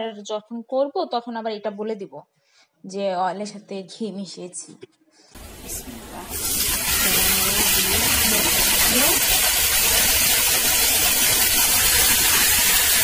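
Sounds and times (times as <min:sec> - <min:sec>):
chicken sizzling in oil: 0:05.4 - 0:13.0.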